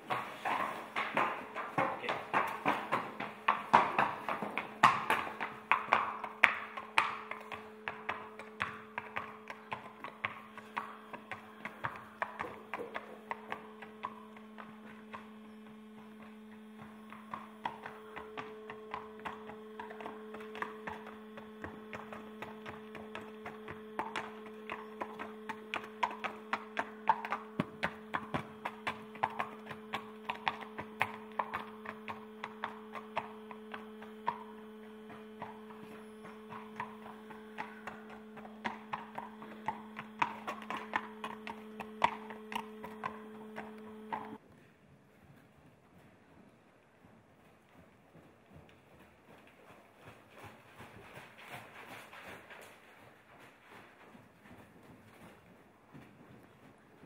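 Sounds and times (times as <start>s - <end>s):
horse hooves on concrete: 0.0s - 57.0s
low hum: 2.6s - 44.4s.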